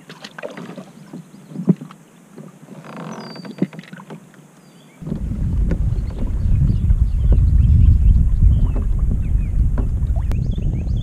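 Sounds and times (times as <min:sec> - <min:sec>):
knocks on kayak: 0:05.0 - 0:07.6, 0:08.4 - 0:10.4.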